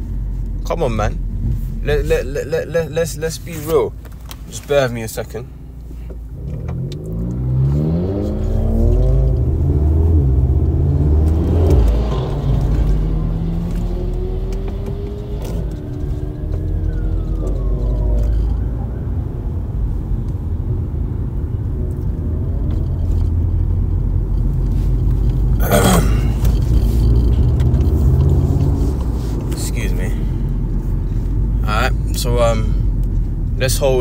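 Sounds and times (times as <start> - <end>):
car cabin road rumble: 0.0 - 34.0
rising and falling whine: 6.9 - 19.8.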